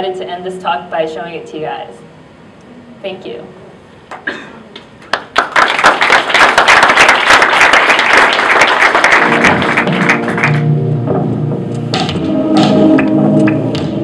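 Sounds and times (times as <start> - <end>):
audience applauding: 5.1 - 10.7
music with held notes: 9.2 - 14.0.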